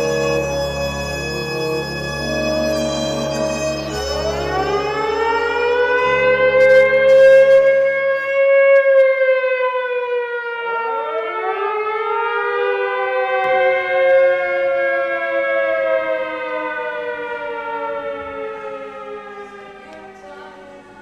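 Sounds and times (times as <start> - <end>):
low steady drone: 0.0 - 8.9
air-raid siren wailing: 0.0 - 21.0.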